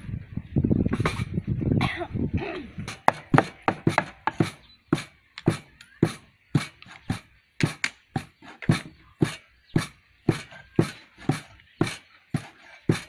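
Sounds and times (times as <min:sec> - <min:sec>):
cleaver chopping meat on wooden board: 0:02.9 - 0:05.6.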